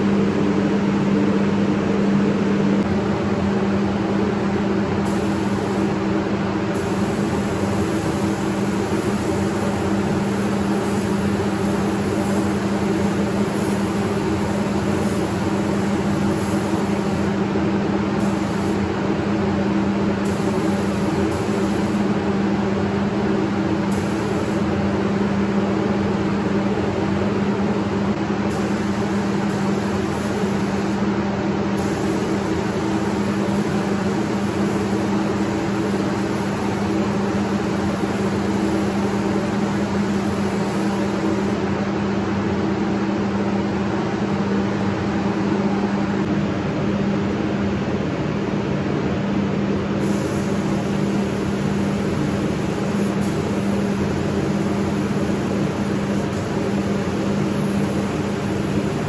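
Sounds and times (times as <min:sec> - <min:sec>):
ventilation fans humming: 0:00.0 - 0:59.0
spray gun hissing: 0:05.0 - 0:06.0, 0:06.7 - 0:17.4, 0:18.1 - 0:18.9, 0:20.2 - 0:22.2, 0:23.9 - 0:24.6, 0:28.5 - 0:31.1, 0:31.8 - 0:41.6, 0:50.0 - 0:59.0.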